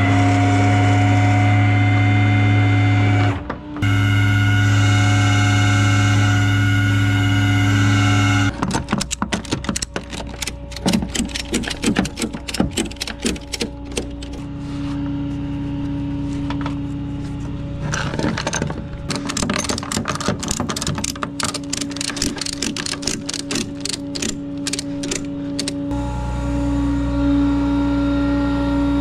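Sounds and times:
steady low hum: 0.1s - 29.0s
ratchet strap clicking: 8.5s - 14.4s, 18.0s - 25.8s.

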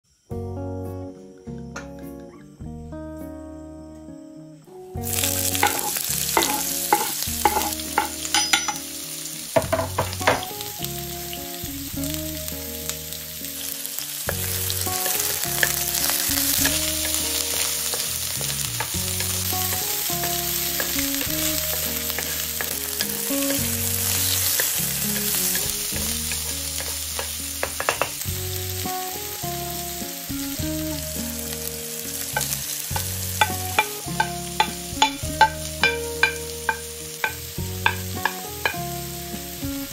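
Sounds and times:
soft background music: 0.2s - 39.9s
food sizzling in a frying pan: 5.0s - 39.9s
utensil clicking against pan: 5.5s - 8.8s, 14.3s - 28.3s, 32.3s - 38.8s.

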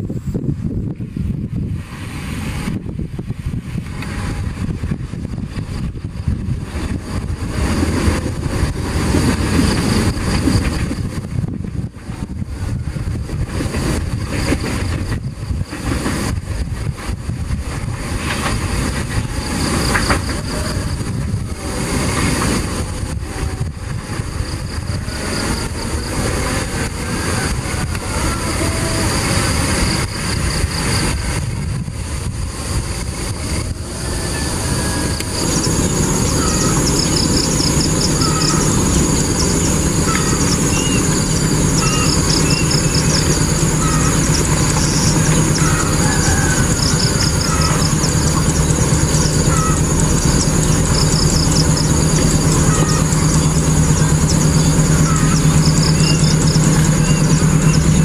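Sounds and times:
diesel locomotive hum: 0.0s - 58.0s
train rumbling on rails: 0.0s - 58.0s
wind buffeting microphone: 0.0s - 58.0s
insects buzzing: 32.4s - 58.0s
birds chirping: 35.3s - 58.0s.

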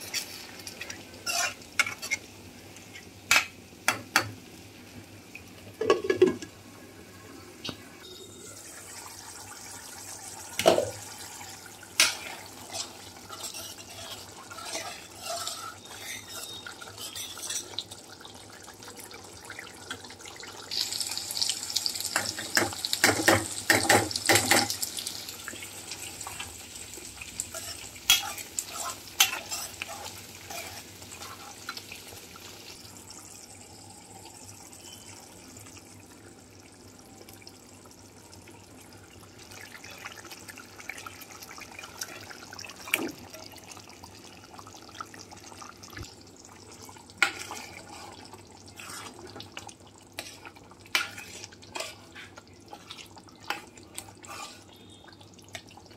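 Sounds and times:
gravy sizzling and bubbling: 0.0s - 55.9s
steel spoons scraping metal pan: 12.0s - 17.7s.

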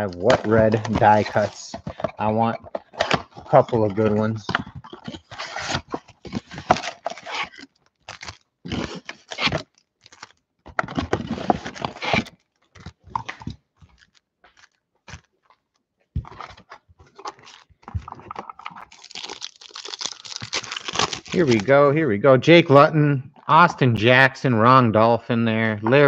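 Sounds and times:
foil packs crinkling: 0.0s - 21.9s
cardboard ripping: 0.2s - 15.3s, 16.3s - 21.8s.

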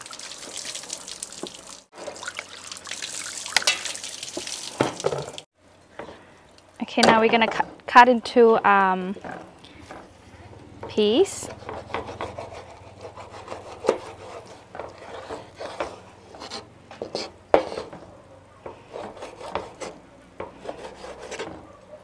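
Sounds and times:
knife sawing through fish: 11.5s - 18.0s, 18.8s - 20.0s, 20.6s - 21.6s.

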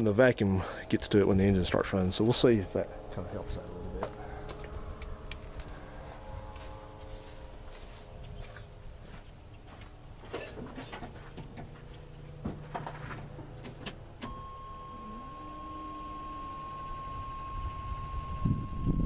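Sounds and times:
high warning tone: 0.0s - 8.4s, 14.2s - 19.0s
clicks and knocks of controls: 10.6s - 14.4s.

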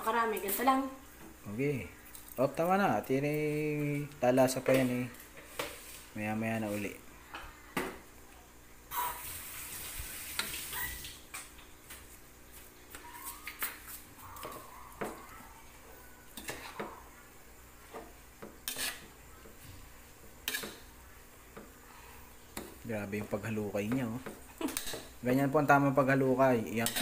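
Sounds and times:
metal spoon scraping a wok: 16.4s - 16.8s, 18.6s - 19.2s, 20.4s - 20.9s, 26.8s - 27.0s.

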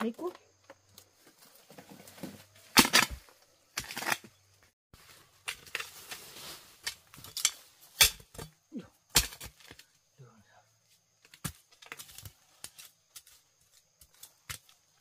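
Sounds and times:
brush and leaves rustling: 0.1s - 8.4s, 11.3s - 15.0s.

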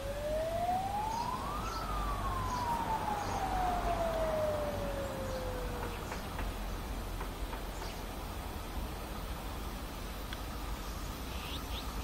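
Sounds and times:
siren wailing: 0.0s - 6.3s.

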